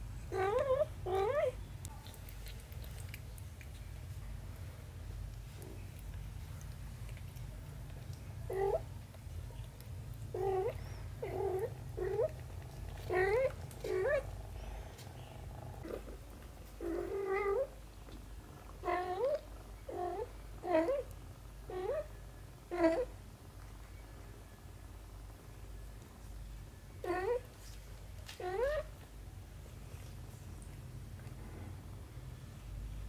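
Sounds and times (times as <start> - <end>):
cat purring: 5.2 - 23.6, 27.0 - 27.7, 28.3 - 28.9
cat meowing: 13.1 - 14.3.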